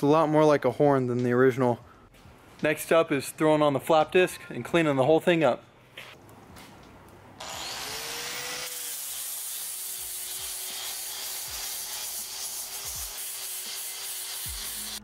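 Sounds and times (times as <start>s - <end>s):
angle grinder motor whine: 7.4s - 15.0s.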